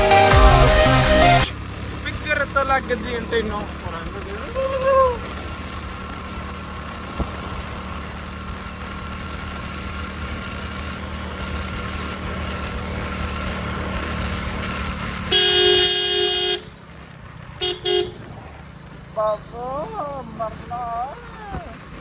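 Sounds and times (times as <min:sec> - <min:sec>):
motorcycle running: 0:00.0 - 0:22.0
vehicle horn: 0:15.3 - 0:16.8, 0:17.6 - 0:18.3.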